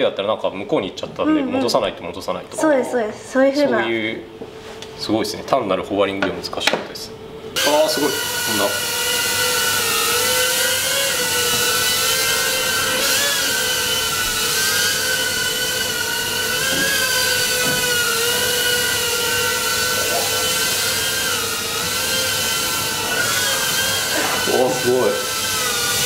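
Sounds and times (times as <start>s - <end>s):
drone propellers whining: 7.6s - 26.0s.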